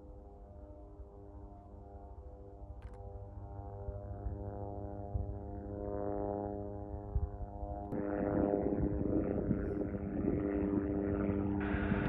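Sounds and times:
jet engines droning: 7.8s - 12.0s.

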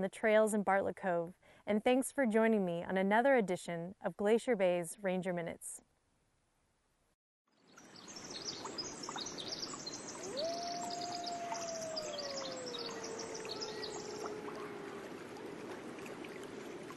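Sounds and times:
small birds chirping and trilling: 7.7s - 14.8s
long wailing call: 10.1s - 15.7s.

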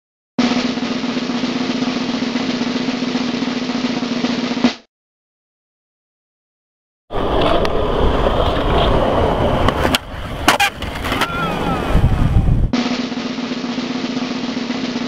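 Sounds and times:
skateboard wheels rolling on concrete: 7.1s - 15.0s
skateboard snapping and clacking: 8.4s - 11.4s.

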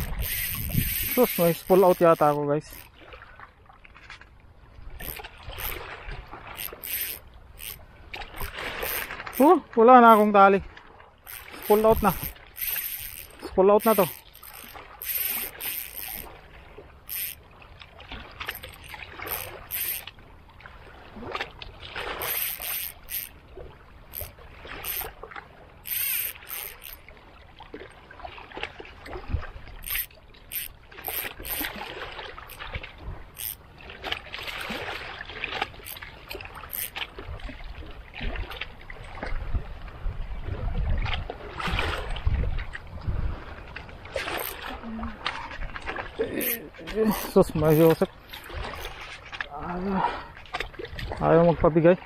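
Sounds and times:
wind rumble on microphone: 0.0s - 1.4s, 37.2s - 46.3s
sea water washing and splashing: 4.9s - 52.0s.

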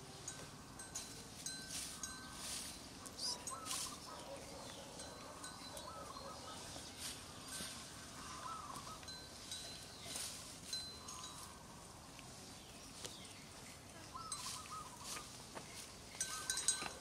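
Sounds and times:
faint outdoor ambience: 0.0s - 17.0s
wavering high-pitched calls: 1.0s - 4.2s, 7.5s - 11.6s, 14.1s - 15.4s, 16.2s - 17.0s.

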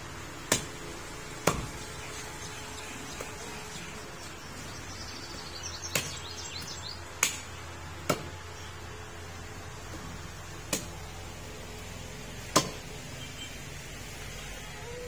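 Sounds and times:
cleaver chopping meat on wood: 0.5s - 0.8s, 1.4s - 1.8s, 5.4s - 6.2s, 7.2s - 8.4s, 10.7s - 11.0s, 12.5s - 12.9s.

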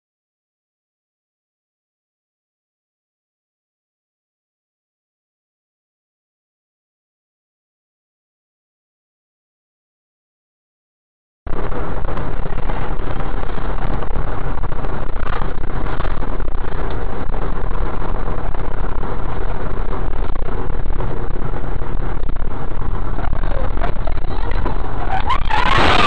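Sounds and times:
bus engine and road noise: 11.5s - 26.0s.

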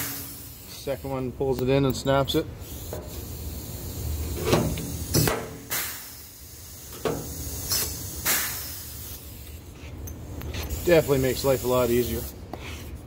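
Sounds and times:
rivet gun air hiss: 0.0s - 1.1s, 2.6s - 9.6s.

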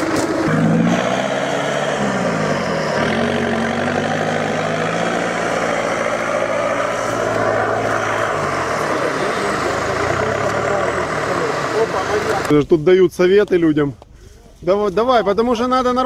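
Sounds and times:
vehicle engine running under load: 0.0s - 12.6s.

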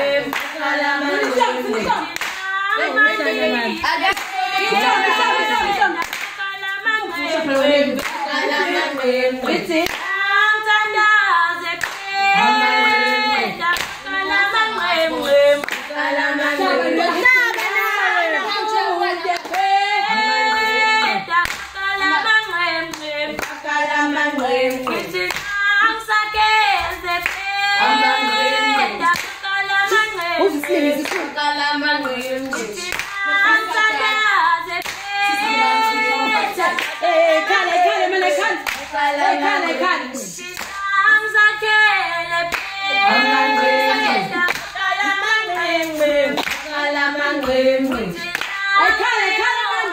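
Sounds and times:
women singing together: 0.0s - 49.9s
hand clapping: 0.3s - 0.6s, 1.2s - 2.6s, 3.8s - 5.0s, 5.6s - 6.9s, 7.5s - 8.2s, 9.4s - 10.2s, 11.8s - 12.2s, 13.0s - 15.9s, 19.4s - 19.7s, 21.4s - 23.6s, 24.3s - 25.7s, 26.3s - 27.5s, 29.0s - 31.4s, 32.0s - 37.5s, 38.6s - 38.9s, 40.4s - 40.9s, 42.5s - 42.8s, 44.2s - 44.8s, 45.4s - 46.8s, 47.4s - 49.1s.

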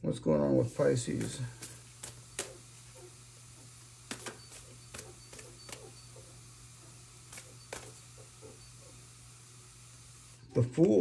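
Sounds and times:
cards being shuffled: 4.1s - 5.9s, 7.3s - 8.0s.

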